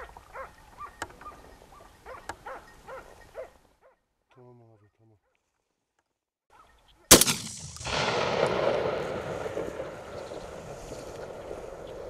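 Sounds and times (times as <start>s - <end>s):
gunshot: 7.1s - 10.8s
echo off hillsides: 7.1s - 12.0s.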